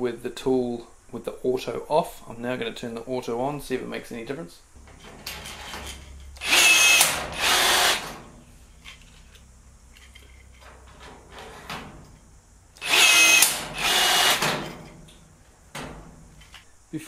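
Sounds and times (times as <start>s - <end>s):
rivet gun motor running: 6.4s - 8.2s, 12.8s - 14.6s.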